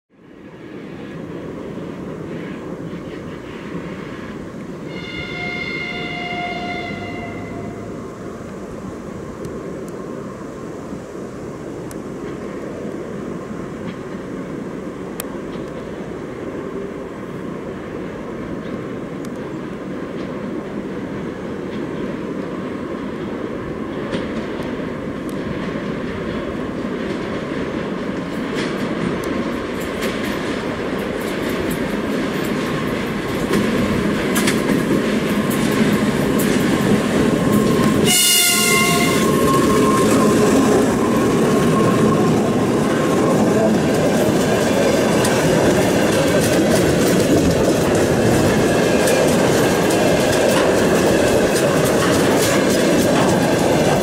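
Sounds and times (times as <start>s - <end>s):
locomotive horn tone: 4.8s - 8.0s, 38.0s - 40.2s
diesel locomotive engines running: 11.7s - 54.0s
train wheels clacking over rail joints: 21.6s - 54.0s.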